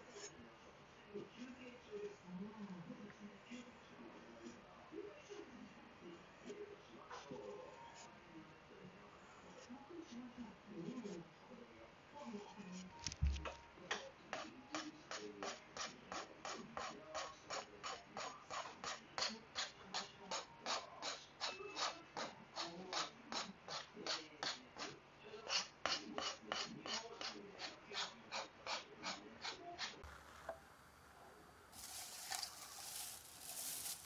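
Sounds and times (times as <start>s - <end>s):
knife scraping on whetstone: 31.8s - 34.0s.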